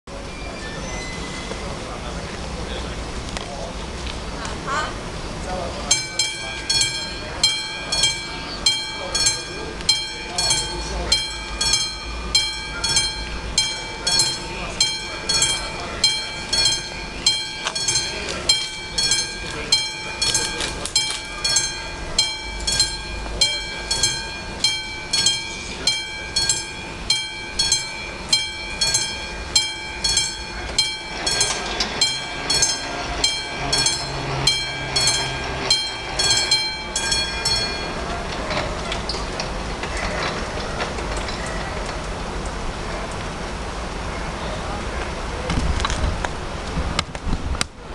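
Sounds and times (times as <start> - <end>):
level-crossing warning bell ringing: 5.5 - 43.0.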